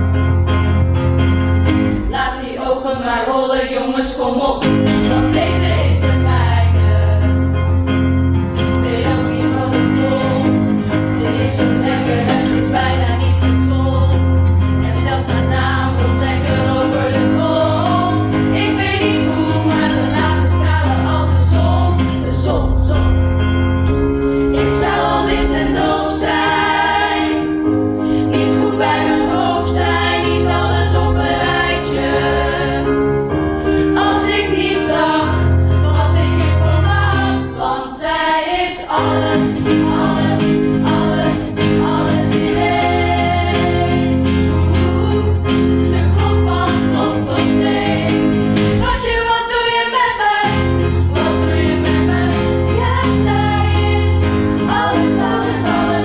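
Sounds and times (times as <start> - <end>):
instrumental backing: 0.0 - 3.7, 4.6 - 56.0
teenagers singing: 1.7 - 7.7, 8.6 - 56.0.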